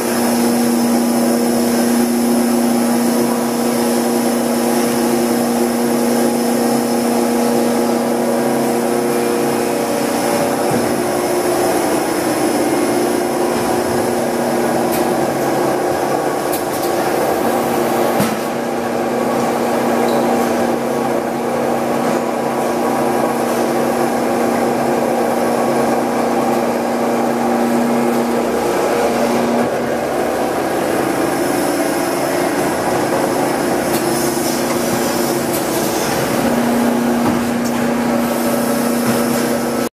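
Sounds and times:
machine hydraulic pump hum: 0.0 - 39.9.

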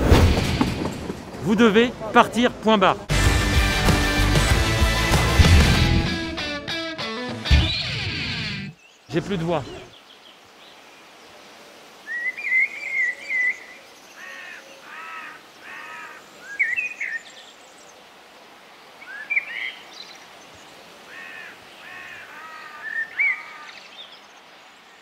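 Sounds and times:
birds calling: 7.4 - 25.0
faint outdoor hiss: 8.4 - 25.0.

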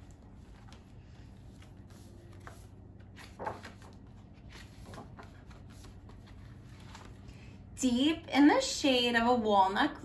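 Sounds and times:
paper rustling: 0.0 - 7.4
faint room hum: 0.0 - 10.0.

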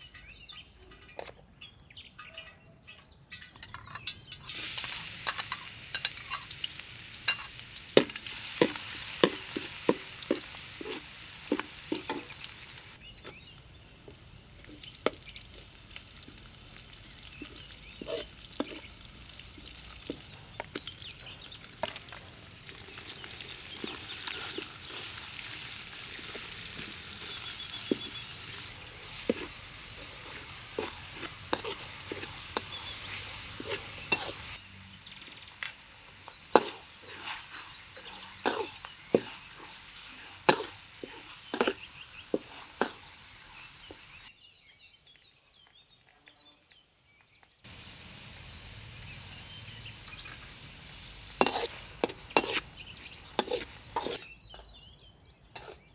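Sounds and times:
oil sizzling in a wok: 4.4 - 13.0, 13.6 - 44.3, 47.6 - 54.3
metal spatula scraping a pan: 4.8 - 12.4, 17.4 - 19.0, 23.2 - 34.6, 36.5 - 43.6, 51.4 - 54.3, 55.6 - 55.9.

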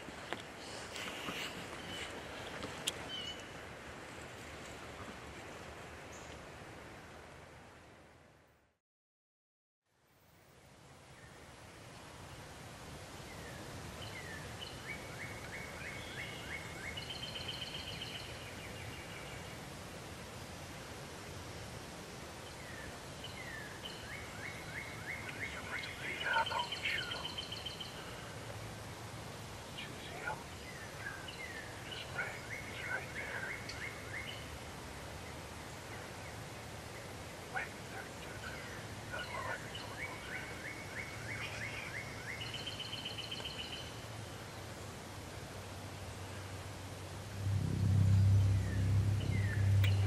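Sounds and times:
birds chirping: 22.4 - 28.4, 29.6 - 34.6, 35.2 - 44.9, 47.3 - 50.0
lower bird call: 47.3 - 50.0.

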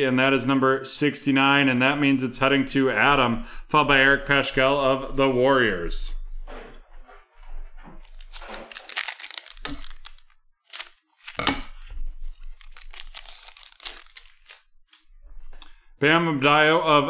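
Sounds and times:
foil wrapper tearing and crinkling: 8.1 - 15.1.

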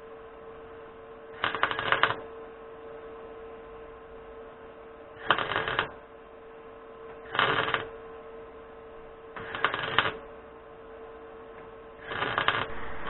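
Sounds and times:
faint steady hum: 0.0 - 13.0
welder crackling: 1.4 - 2.2, 5.2 - 6.0, 7.2 - 7.9, 9.4 - 10.2, 12.0 - 13.0.

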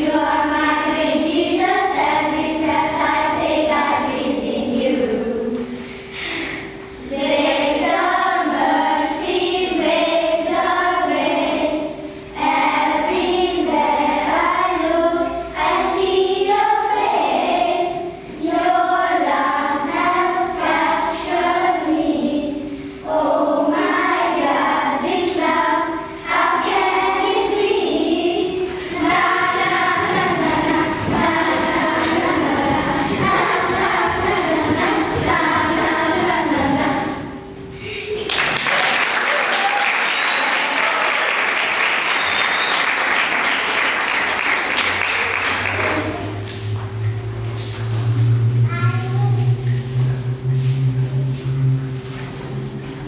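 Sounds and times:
children singing: 0.0 - 38.0.

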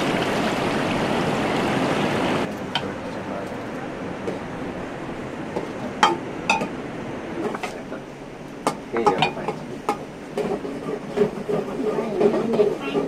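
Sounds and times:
metal pots and utensils clinking: 5.6 - 6.7, 8.7 - 13.0.

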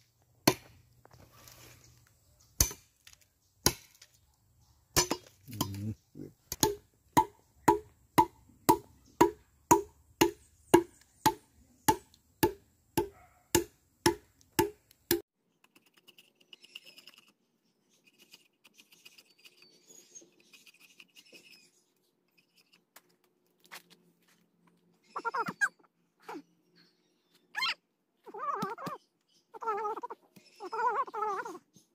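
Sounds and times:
machete chopping wood: 0.4 - 0.8, 2.6 - 2.9, 3.6 - 4.1, 5.0 - 5.8, 6.5 - 15.2.

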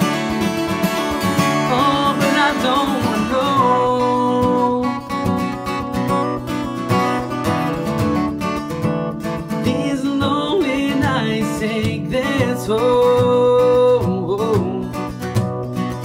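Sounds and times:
person singing wordlessly: 0.0 - 5.8, 9.6 - 15.2
acoustic guitar: 0.0 - 16.0.

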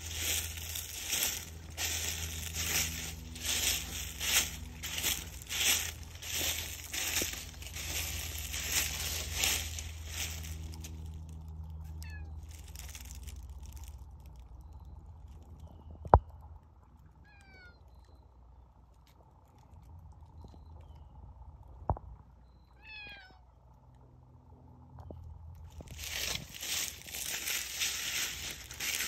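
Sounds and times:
dry leaves crunching: 0.0 - 14.6, 25.7 - 29.0
cat meowing: 17.2 - 17.8, 22.8 - 23.5.

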